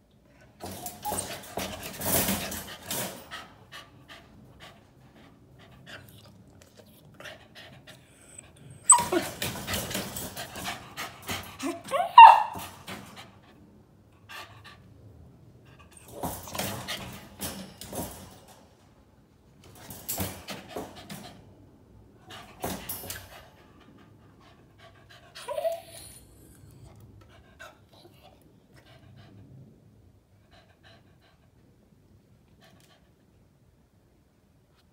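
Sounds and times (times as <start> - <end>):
puppy whining: 0.8 - 1.7, 8.0 - 9.6, 11.6 - 12.6, 25.3 - 27.0.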